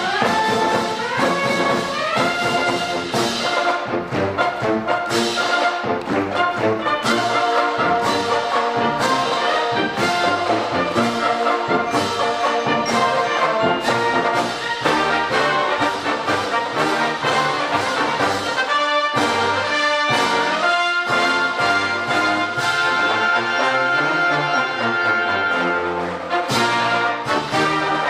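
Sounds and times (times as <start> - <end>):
drums keeping a steady beat: 0.0 - 23.8
brass band playing: 0.0 - 28.0.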